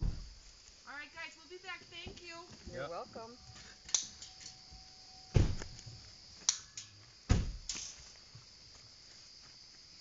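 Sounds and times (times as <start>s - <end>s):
night insects chorus: 0.0s - 10.0s
sharp click: 3.9s - 4.6s, 6.4s - 7.0s
heavy knocks on wire crate: 7.3s - 7.8s.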